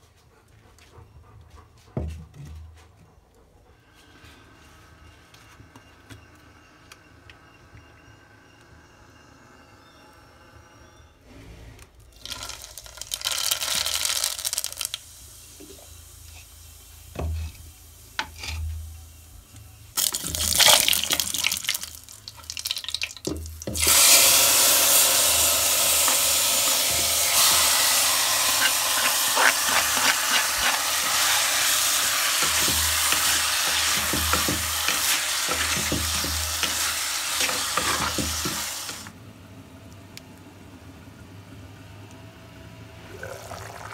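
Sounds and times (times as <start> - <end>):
meat sizzling in hot oil: 12.2 - 17.1, 20.0 - 39.1
wooden spoon scraping a pot: 26.9 - 39.0.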